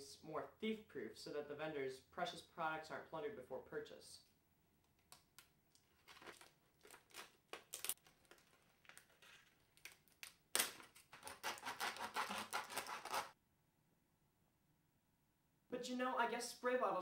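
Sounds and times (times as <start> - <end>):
plastic blister pack crackling: 5.7 - 13.3.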